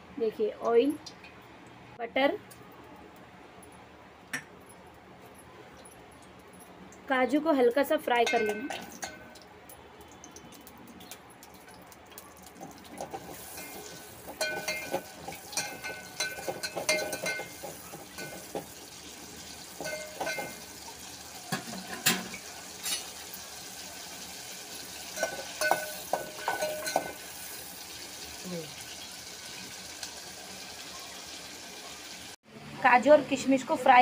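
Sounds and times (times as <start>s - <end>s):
nuts sizzling in butter: 12.8s - 32.4s
metal spoon scraping pot: 25.2s - 27.2s.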